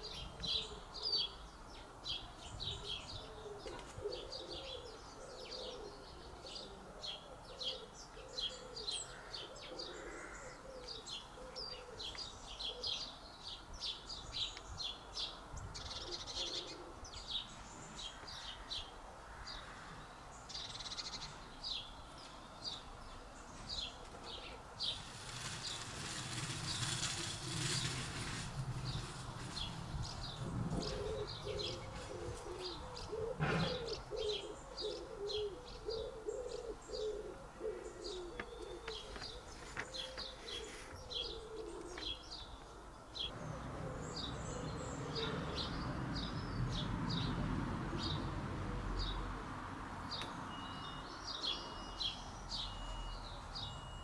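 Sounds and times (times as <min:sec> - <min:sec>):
birds chirping: 0:00.0 - 0:49.3, 0:50.1 - 0:54.0
low cooing: 0:02.8 - 0:13.0, 0:30.4 - 0:45.7
broad rushing noise: 0:24.8 - 0:32.3.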